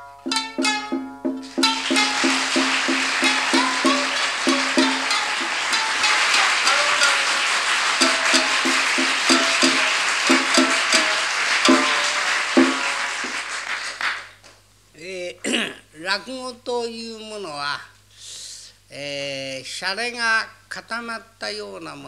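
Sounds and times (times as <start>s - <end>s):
shamisen plucking: 0.0s - 13.4s
drum strikes: 0.0s - 13.6s.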